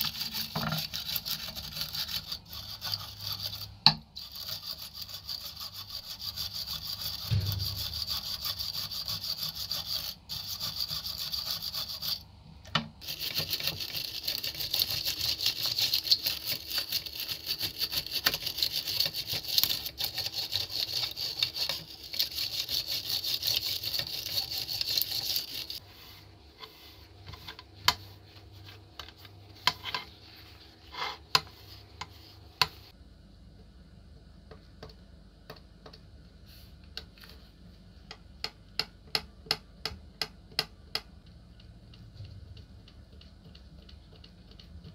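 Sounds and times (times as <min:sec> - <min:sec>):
wire brush scrubbing metal: 0:00.0 - 0:12.2, 0:13.0 - 0:25.8.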